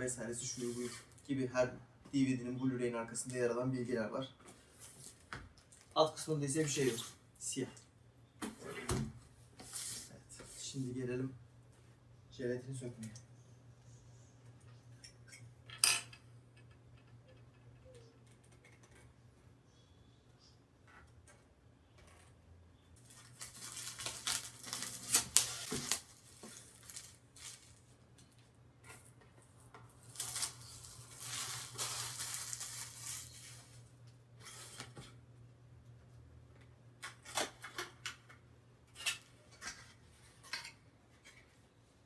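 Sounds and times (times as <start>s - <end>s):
plastic shrink wrap crinkling: 23.0s - 34.0s.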